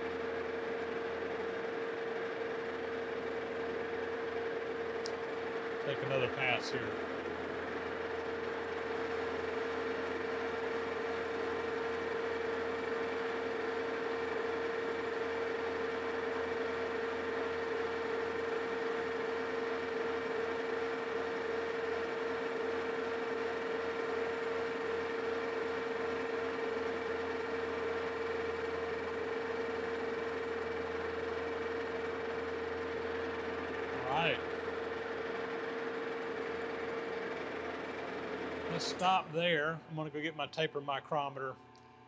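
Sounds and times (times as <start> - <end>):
metal lathe whining: 0.0 - 40.1.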